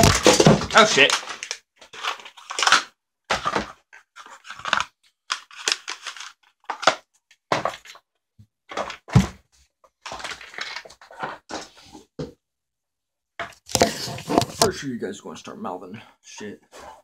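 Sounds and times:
rustling and scraping handling: 8.7 - 12.2, 13.6 - 14.8.

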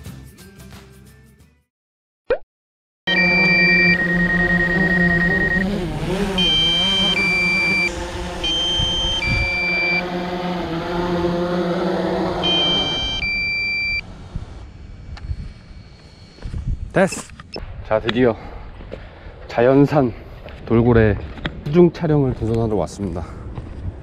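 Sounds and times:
two-tone electronic beeping: 3.1 - 10.1, 12.4 - 14.0
electric motor hum: 3.1 - 16.9.

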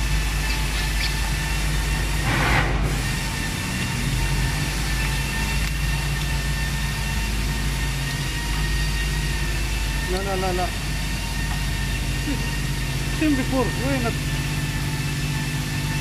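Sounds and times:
machinery drone with hum: 0.0 - 16.0
thin whining tones: 3.2 - 16.0.

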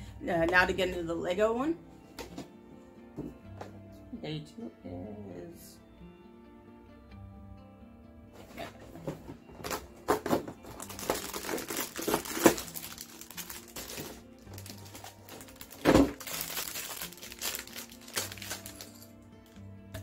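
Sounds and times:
plastic bag rustling: 8.4 - 19.6
cardboard box crinkling: 9.6 - 19.0.

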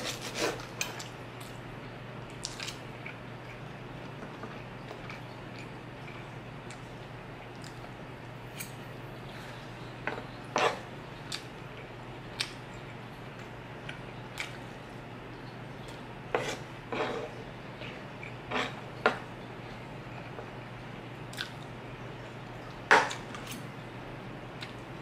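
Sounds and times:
cutlery scraping wooden board: 0.0 - 0.8
steady low hum: 0.0 - 25.0.

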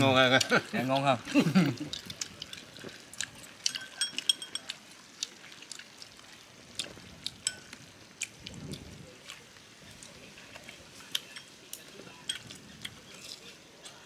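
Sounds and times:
ringing clinks: 3.7 - 4.8
utensils tapping bowls and plates: 3.7 - 4.8, 7.4 - 7.8.

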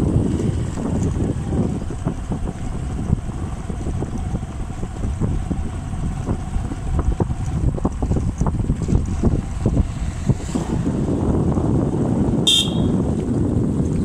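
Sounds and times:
motorcycle engine rumble: 0.0 - 14.0
wind buffeting microphone: 0.0 - 14.0.

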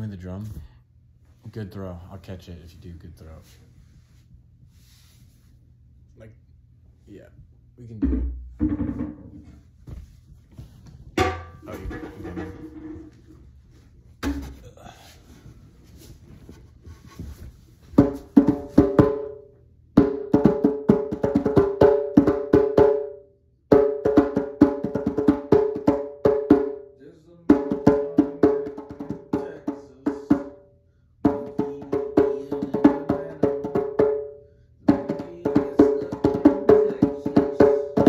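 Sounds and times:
hollow woody hand percussion: 18.0 - 19.4, 20.0 - 26.8, 27.5 - 30.6, 31.2 - 38.0.

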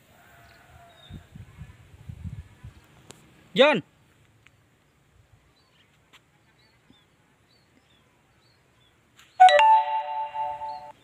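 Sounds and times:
chime sound effect: 9.4 - 11.0
faint high chirps: 9.4 - 11.0.

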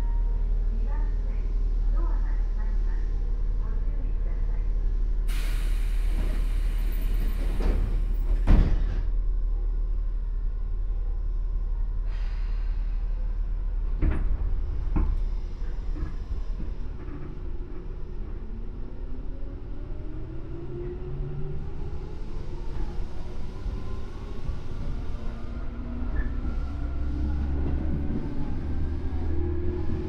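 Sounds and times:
train doors closing with hiss: 5.3 - 9.0.

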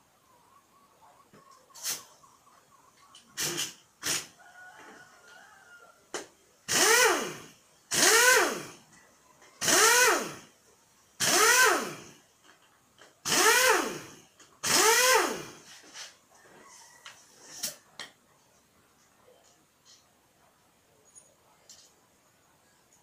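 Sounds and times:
air impact wrench bursts: 3.3 - 4.4, 6.6 - 8.8, 9.6 - 10.6, 11.2 - 12.2, 13.2 - 15.9.

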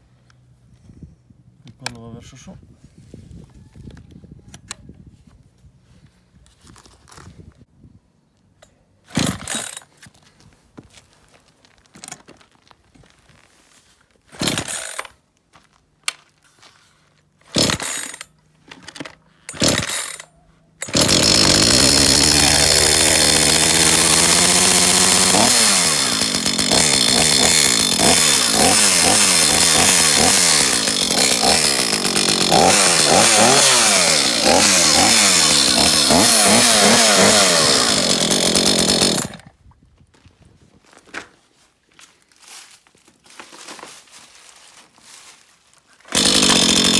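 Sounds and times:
chainsaw engine revving: 9.1 - 9.8, 14.4 - 15.0, 17.4 - 18.3, 19.5 - 20.2, 20.8 - 39.5, 46.1 - 46.9.

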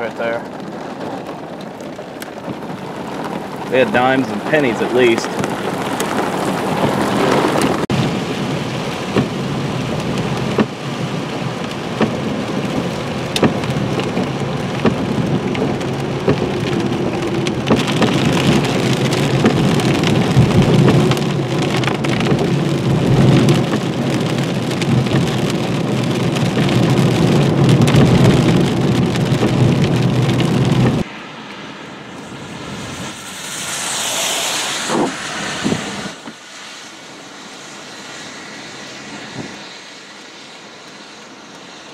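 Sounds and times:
hail ticking on car: 0.0 - 31.0
heavy rain on car roof: 0.0 - 41.9.

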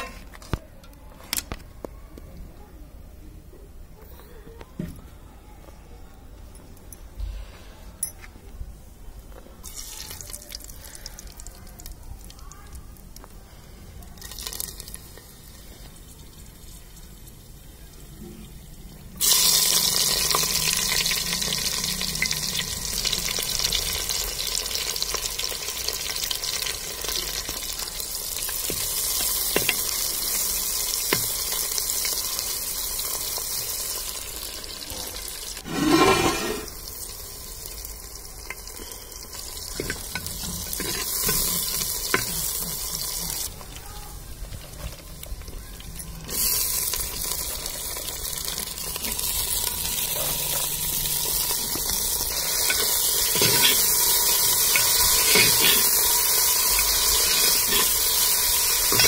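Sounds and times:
onions sizzling in hot oil: 14.2 - 43.8, 44.6 - 59.0
metal spatula stirring: 35.7 - 36.7, 39.8 - 43.0, 52.4 - 56.1, 57.1 - 59.0.

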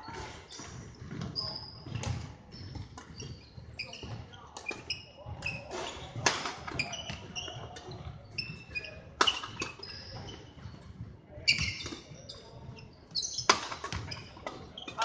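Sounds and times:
shoes squeaking on court floor: 0.0 - 15.0.

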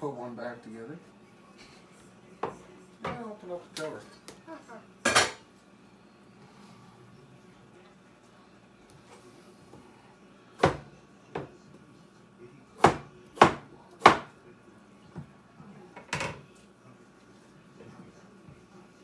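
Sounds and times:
knife chopping on wooden board: 10.6 - 11.5, 12.8 - 14.3.

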